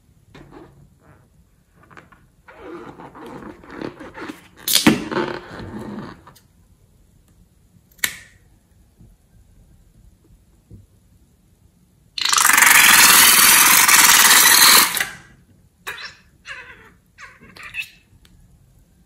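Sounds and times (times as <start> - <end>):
rubber balloon rubbing: 0.4 - 6.4
sharp click: 7.9 - 8.4
sharp snap: 7.9 - 8.4.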